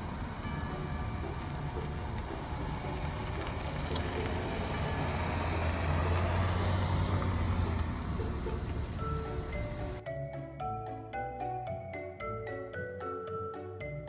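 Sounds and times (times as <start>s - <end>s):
car driving past: 0.0s - 10.0s.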